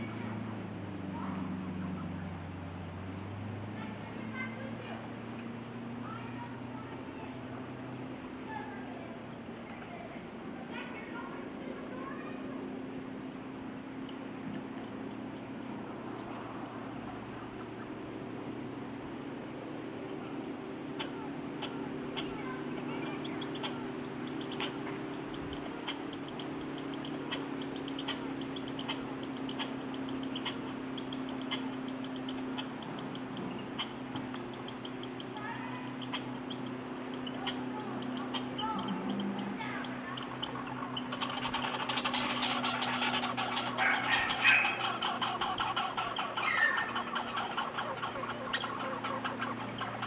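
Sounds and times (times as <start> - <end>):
faint low hum: 0.0 - 50.0
squirrel chattering: 13.9 - 18.0, 20.0 - 50.0
squirrel chirps: 13.9 - 18.0, 18.6 - 19.4, 20.0 - 50.0.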